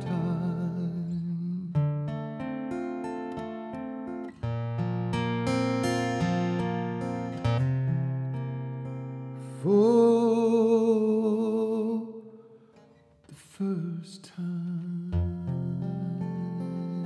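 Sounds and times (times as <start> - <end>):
person singing with vibrato: 0.0 - 1.8, 9.4 - 17.0
acoustic guitar strumming: 0.0 - 17.0.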